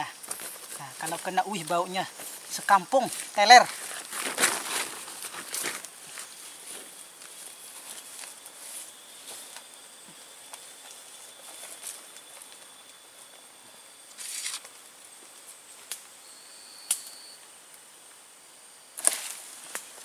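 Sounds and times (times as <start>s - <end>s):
footsteps in dry leaves: 0.0s - 12.8s, 14.2s - 14.7s
faint high-pitched whine: 0.0s - 20.0s
twigs snapping: 19.0s - 20.0s.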